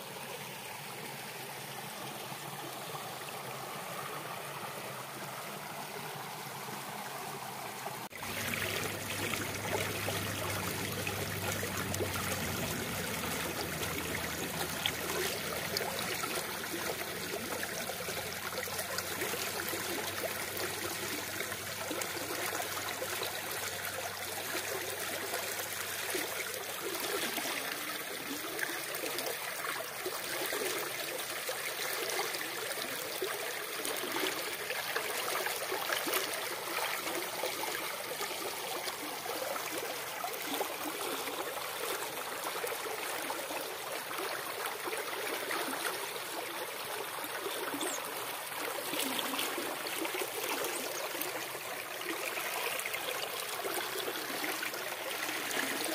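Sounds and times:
stream running over stones: 0.0 - 55.9
water rushing over rock ledge: 8.0 - 22.6.

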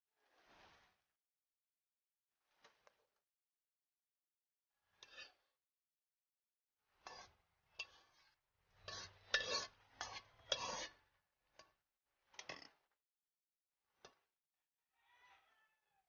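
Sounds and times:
spatula scraping a wok: 0.2 - 1.0, 4.8 - 5.5, 6.9 - 11.7.

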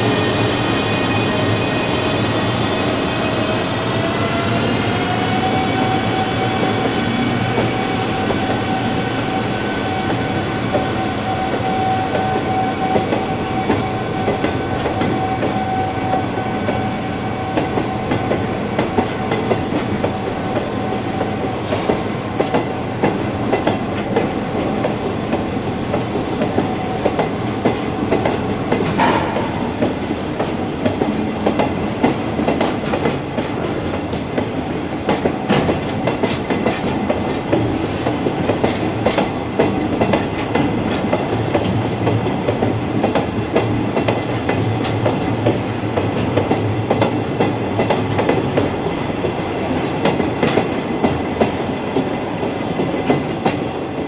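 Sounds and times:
electric locomotive motor whine: 0.0 - 22.4.

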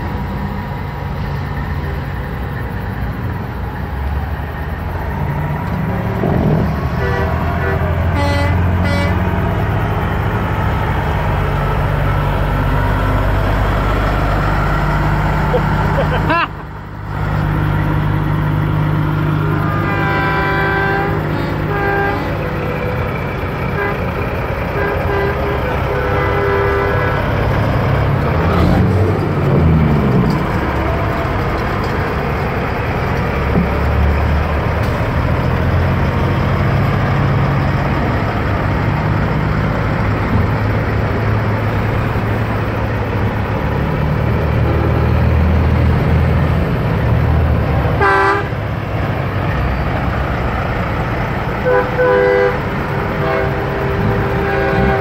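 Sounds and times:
diesel truck engines rumbling: 0.0 - 55.0
air horn blasts: 6.9 - 9.3, 19.5 - 22.8, 23.8 - 24.1, 24.7 - 27.3, 48.0 - 48.6, 51.6 - 55.0.

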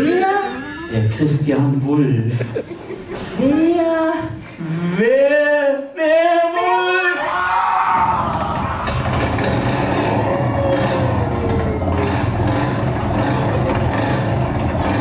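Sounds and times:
motorcycle engine over loudspeakers: 8.6 - 15.0.

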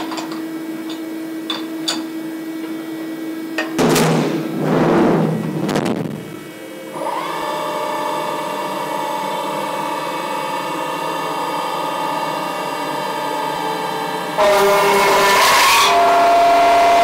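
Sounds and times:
harsh machine clatter: 3.8 - 6.4
milling spindle high whine: 15.8 - 17.0.

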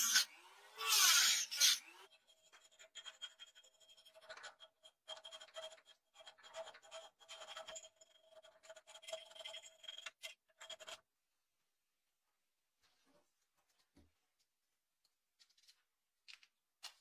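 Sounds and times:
cutting disc grinding metal: 0.0 - 2.1.

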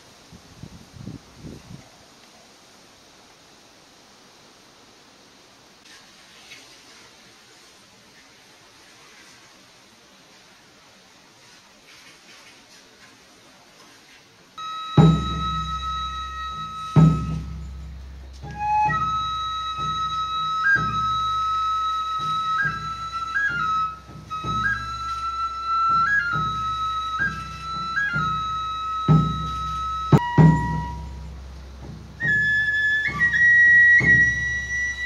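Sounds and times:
bamboo flute long high notes: 14.6 - 35.0
low drum strikes: 14.9 - 35.0.

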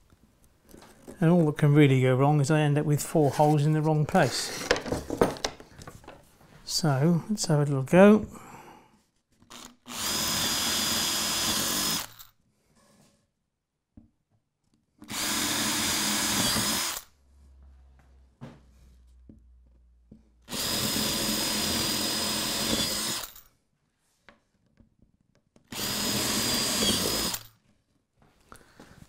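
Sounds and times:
cordless drill boring plywood: 9.4 - 12.3, 15.0 - 17.1, 20.4 - 23.4, 25.6 - 27.6.

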